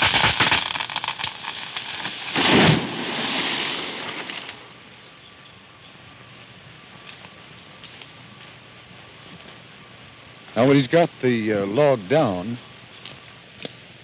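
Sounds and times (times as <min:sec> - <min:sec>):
tree crashing down: 0:00.0 - 0:04.7
wood splitting and branches snapping: 0:00.0 - 0:04.7
rush of branches and leaves: 0:00.0 - 0:05.0.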